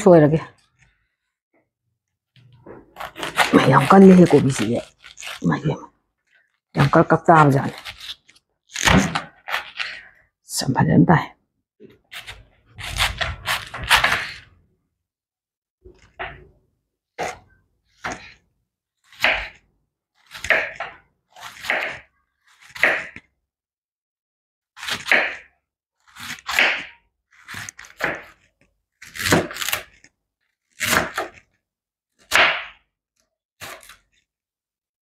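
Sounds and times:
knife slicing cabbage on board: 2.5s - 5.6s, 6.9s - 10.0s, 12.1s - 14.5s, 17.2s - 18.4s, 19.1s - 19.6s, 20.2s - 23.3s, 24.8s - 25.5s, 26.1s - 30.1s, 30.7s - 31.5s, 33.6s - 34.2s.

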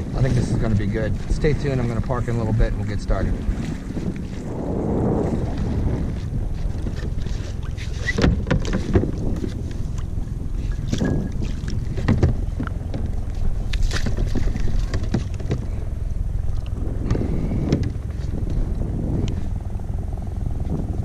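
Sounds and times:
wind rumble on microphone: 0.0s - 21.0s
anchor splashing into water: 10.8s - 15.8s.

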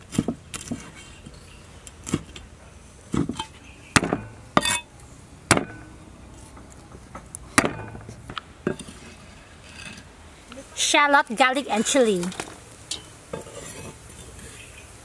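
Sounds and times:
cleaver chopping on wooden block: 4.0s - 4.3s, 7.6s - 8.0s.

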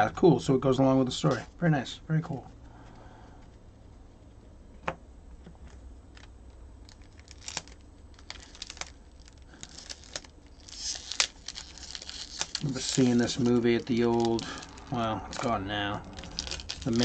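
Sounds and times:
cellophane wrapper crinkling: 6.1s - 17.0s.

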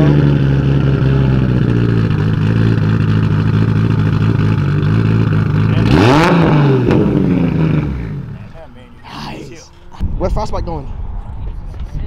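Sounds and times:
car engine idling and revving: 0.0s - 10.1s.

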